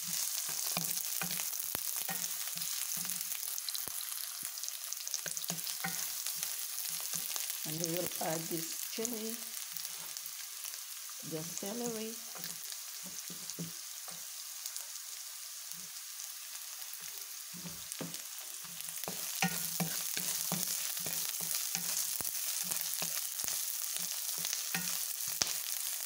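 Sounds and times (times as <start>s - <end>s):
vegetables sizzling in a pan: 0.0s - 26.0s
wooden spatula scraping a pan: 17.5s - 25.4s.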